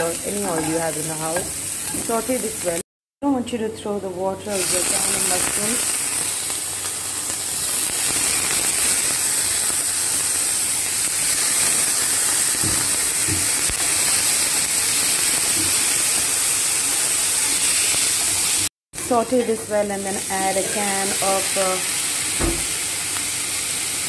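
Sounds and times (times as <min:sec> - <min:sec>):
mushrooms sizzling in a frying pan: 0:00.0 - 0:02.8, 0:04.4 - 0:24.0.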